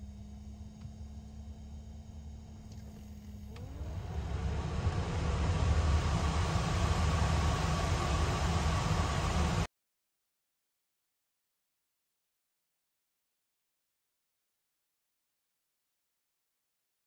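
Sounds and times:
heater blower fan whining: 0.0 - 9.7
rush of air from fan: 2.9 - 9.7.

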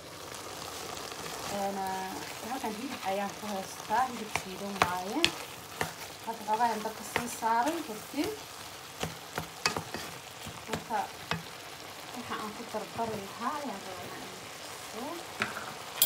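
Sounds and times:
meat sizzling in a pan: 0.0 - 16.0
wooden spoon scraping pan: 4.1 - 8.0, 9.4 - 10.8.

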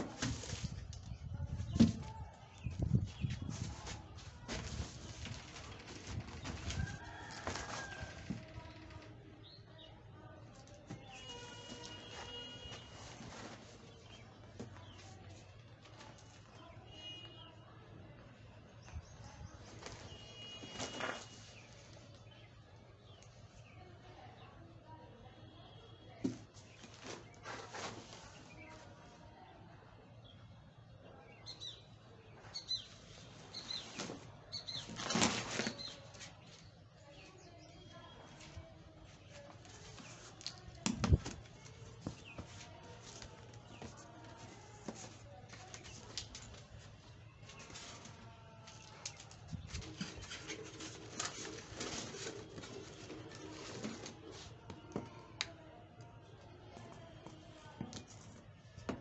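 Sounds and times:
cardboard box rustling and scraping: 11.2 - 14.0, 49.8 - 54.5.

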